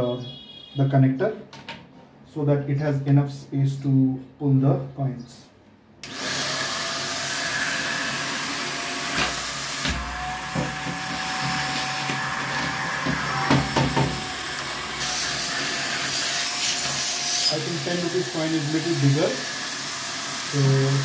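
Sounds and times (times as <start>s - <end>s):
handheld vacuum cleaner whine: 6.0s - 21.0s.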